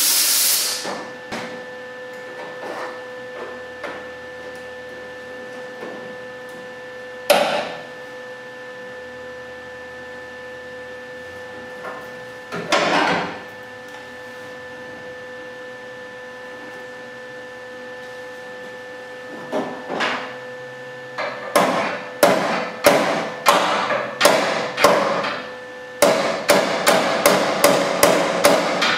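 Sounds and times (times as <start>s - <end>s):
steady electrical hum: 0.0s - 28.9s
loud knocks on sheet metal: 21.5s - 25.4s, 26.0s - 28.9s.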